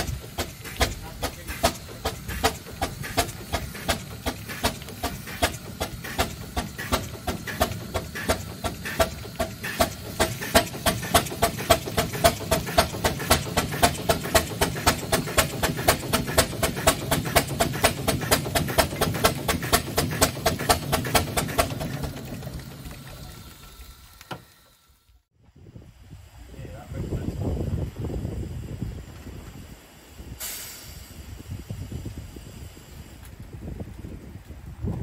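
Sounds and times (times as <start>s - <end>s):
steam roller engine chuffing: 0.0s - 25.3s.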